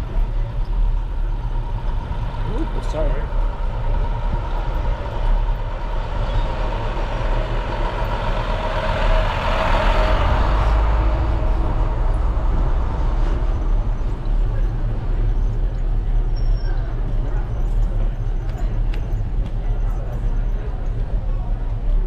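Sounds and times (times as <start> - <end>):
truck passing: 0.0 - 16.2
wind rumble on microphone: 0.0 - 22.0.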